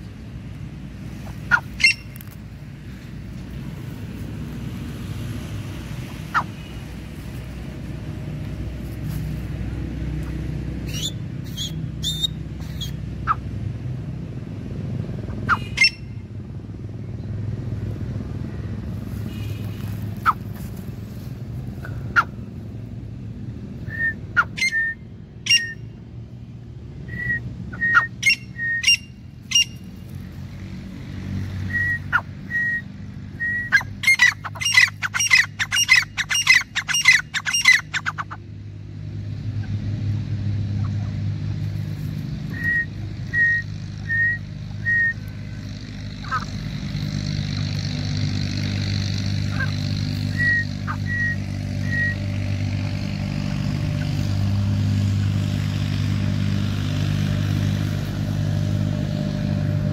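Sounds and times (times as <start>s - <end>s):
francolins calling: 1.1s - 2.4s, 6.1s - 6.8s, 10.2s - 13.5s, 15.3s - 16.2s, 23.9s - 25.9s, 27.1s - 30.0s, 31.6s - 38.5s, 42.4s - 47.8s, 48.4s - 52.5s.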